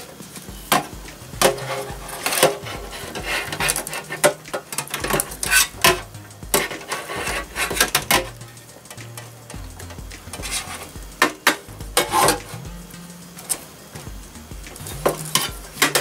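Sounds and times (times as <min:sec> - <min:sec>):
sheet metal parts clinking: 0:00.7 - 0:12.6.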